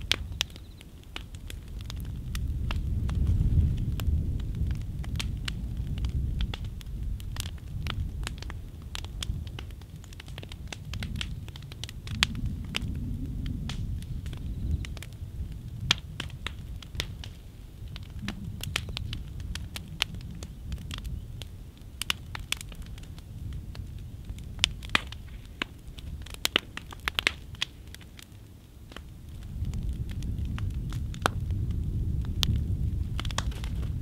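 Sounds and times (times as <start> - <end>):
piano case crackling in flames: 0.0 - 34.0
sharp snaps of burning wood: 0.0 - 34.0
low rumble: 1.5 - 21.5.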